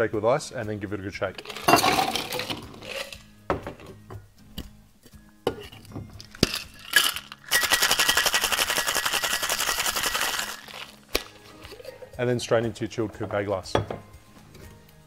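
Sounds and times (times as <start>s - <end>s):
ice and metal tins clinking: 1.3s - 3.9s, 5.5s - 12.1s
ice rattling in cocktail shaker: 1.4s - 3.3s, 6.2s - 11.9s.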